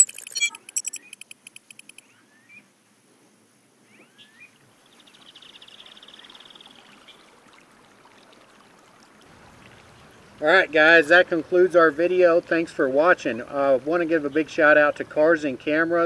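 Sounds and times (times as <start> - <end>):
fast buzzy trill: 0.0 - 2.0
rapid high ticking: 0.0 - 2.0
bird chirps: 0.0 - 2.6
running water hiss: 4.6 - 15.6.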